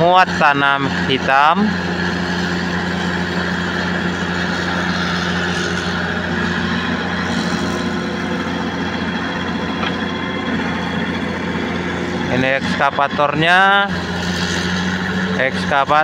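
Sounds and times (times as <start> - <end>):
excavator diesel engine humming: 0.0 - 16.0.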